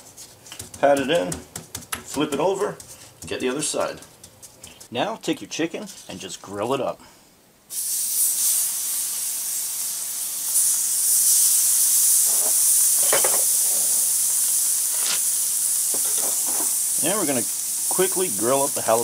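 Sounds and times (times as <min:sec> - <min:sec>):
chicken sizzling on grill: 0:07.7 - 0:19.0.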